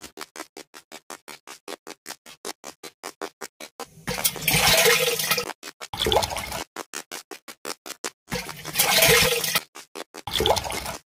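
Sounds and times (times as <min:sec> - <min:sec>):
water splashing and pouring: 0:04.0 - 0:06.6, 0:08.3 - 0:09.6, 0:10.3 - 0:11.0.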